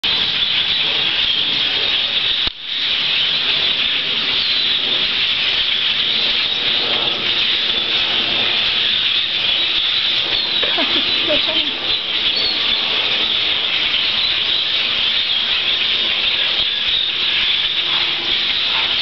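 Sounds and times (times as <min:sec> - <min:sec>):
flock of birds chattering: 0:00.0 - 0:19.0.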